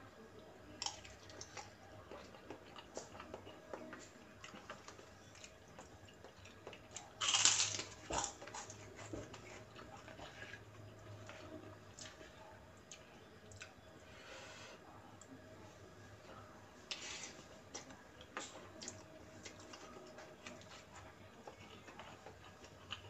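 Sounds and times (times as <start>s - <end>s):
chewing noodles: 0.8s - 13.8s, 17.0s - 23.0s
cracker crunching: 2.2s - 10.4s.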